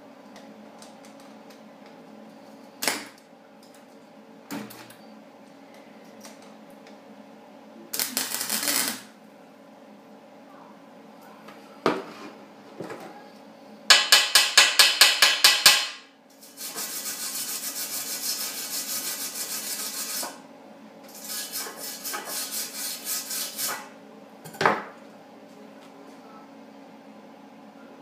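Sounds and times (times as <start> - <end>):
file rasping on steel: 16.4 - 20.4, 21.1 - 23.9.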